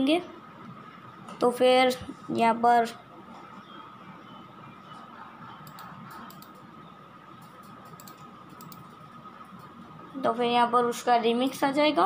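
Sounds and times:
thin steady hum: 0.0 - 12.0
computer mouse clicking: 5.5 - 6.7, 7.4 - 9.0.

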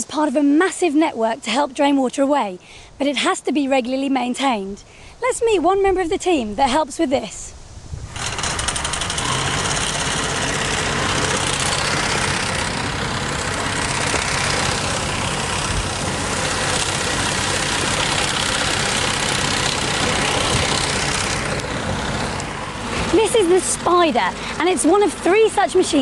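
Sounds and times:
machine engine running: 8.1 - 26.0.

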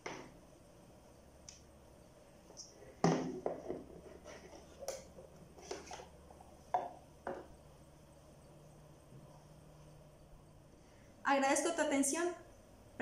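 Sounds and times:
knocks and clatter on a table: 3.0 - 6.1, 6.7 - 7.5.

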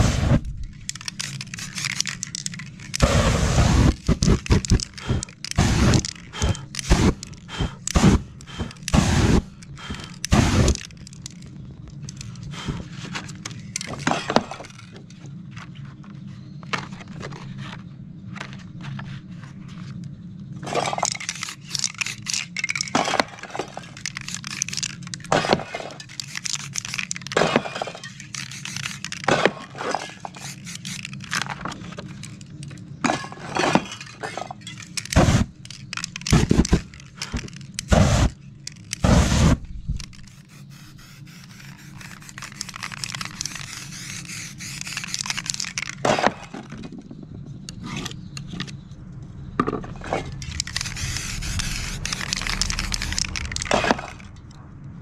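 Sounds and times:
aerosol spray can hissing: 3.0 - 10.8, 28.3 - 29.1, 30.3 - 31.1, 39.0 - 45.6, 50.6 - 53.6
low rumble: 48.6 - 55.0.

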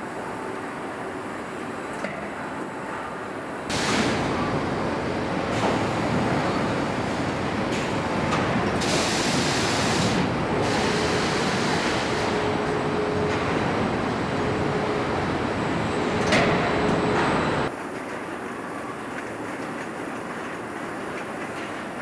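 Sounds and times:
machinery hissing: 3.7 - 17.7.

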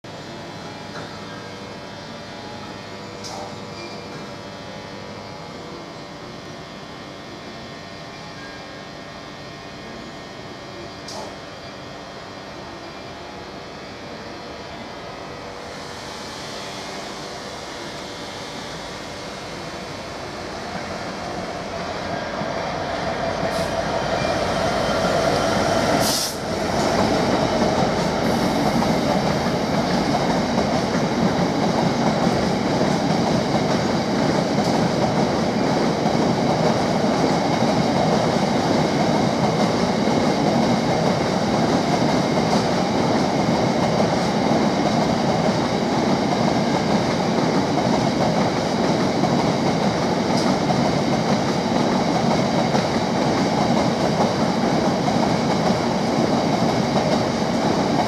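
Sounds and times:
diesel locomotive passing: 14.7 - 58.0.

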